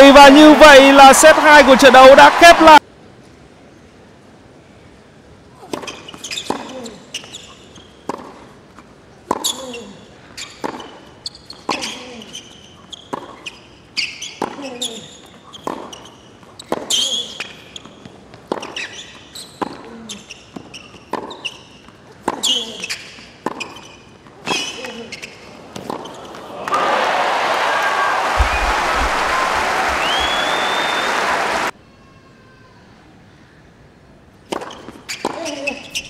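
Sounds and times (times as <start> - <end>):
shoe squeaks on court: 5.8 - 8.1, 9.4 - 26.4, 34.6 - 36.0.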